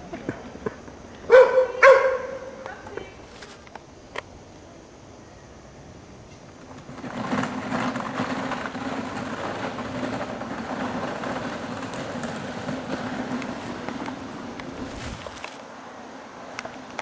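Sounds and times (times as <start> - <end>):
go-kart engine buzzing: 6.5 - 15.6.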